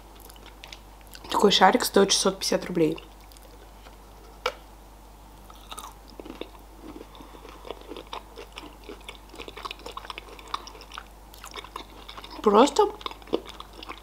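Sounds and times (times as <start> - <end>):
chewing chocolate crunches: 5.5 - 14.0.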